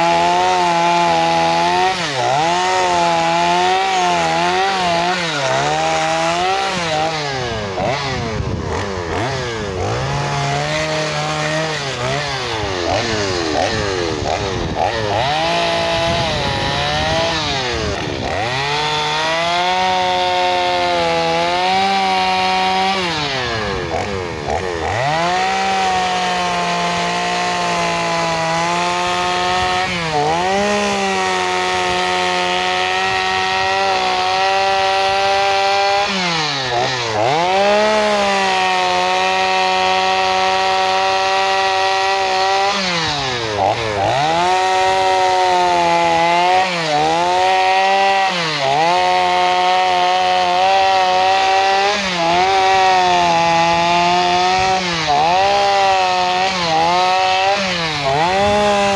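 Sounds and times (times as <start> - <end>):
chainsaw cutting log: 0.0 - 58.9.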